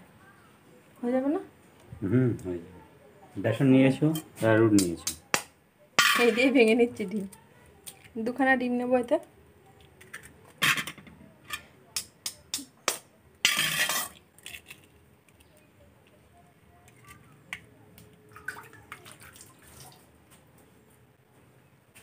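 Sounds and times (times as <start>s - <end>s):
eggshell breaking: 12.0s - 15.4s.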